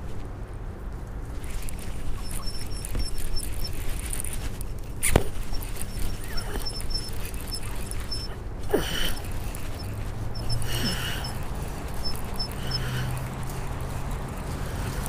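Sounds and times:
rustling and knocking on camera: 1.4 - 8.3
high-pitched chirps: 2.0 - 4.0, 5.3 - 13.2.

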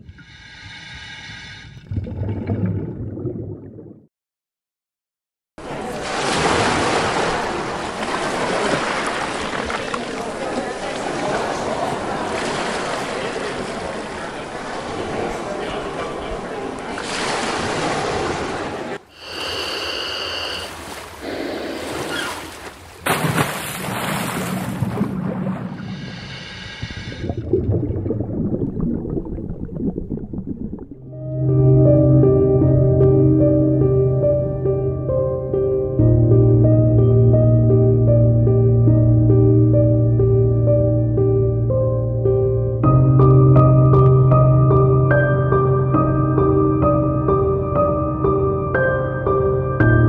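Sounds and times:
sea noise: 0.0 - 4.0, 5.6 - 32.1
waves washing on shore: 5.6 - 27.2
low rumble: 26.8 - 32.0.

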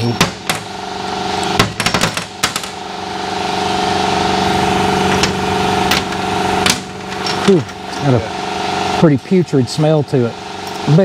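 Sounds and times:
steady machine hum: 0.0 - 11.0
metal engine parts clanking: 5.0 - 8.2.

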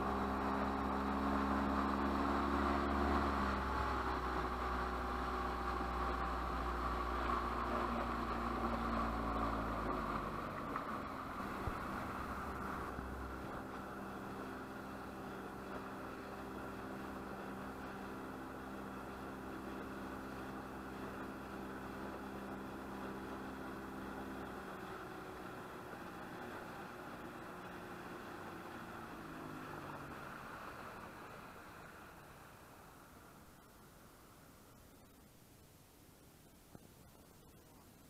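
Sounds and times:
speedboat engine running: 0.0 - 35.2
water rushing past hull: 0.0 - 38.0.

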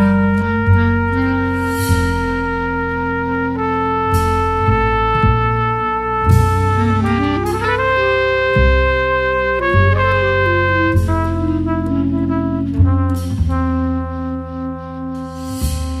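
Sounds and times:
bass line: 0.0 - 16.0
trumpet-like melody: 0.0 - 16.0.

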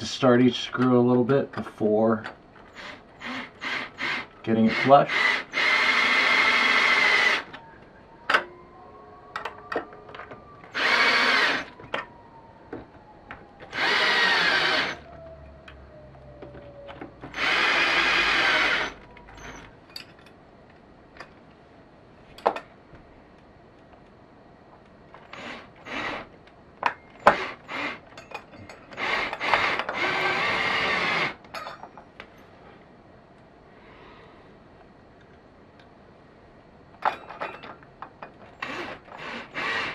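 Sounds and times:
cordless drill driving screws: 2.7 - 7.5, 10.7 - 11.7, 13.7 - 15.1, 17.3 - 19.6, 25.3 - 26.3, 27.2 - 28.0, 28.9 - 31.4, 38.6 - 39.9.

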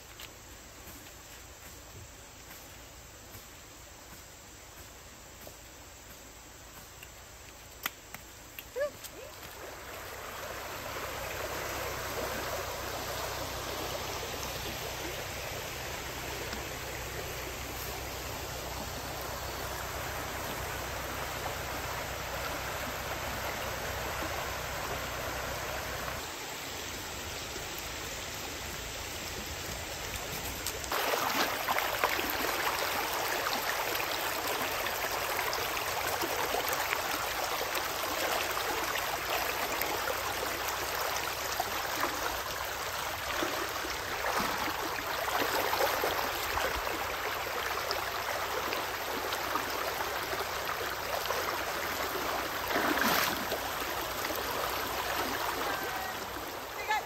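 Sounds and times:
insects chirring: 0.0 - 56.1
creek water rushing: 5.9 - 57.0.

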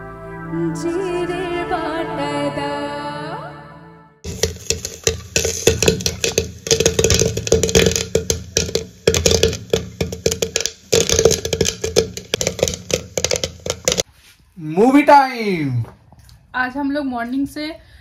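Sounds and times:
popcorn popping in metal pot: 4.2 - 14.0
kernels rattling against metal: 4.3 - 14.0.

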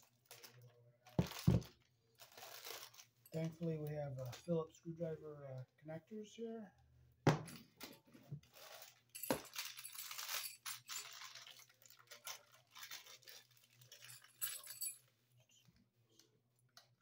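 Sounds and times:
cord rustling: 0.0 - 4.6, 7.8 - 15.1.

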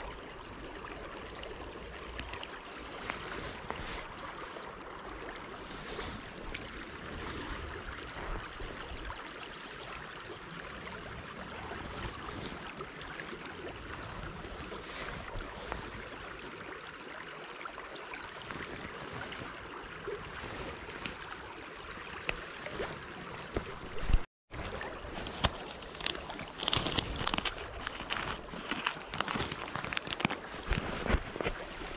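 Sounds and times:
river water flowing: 0.0 - 31.9
wind: 0.0 - 31.9
hands handling fishing line: 23.5 - 31.9.

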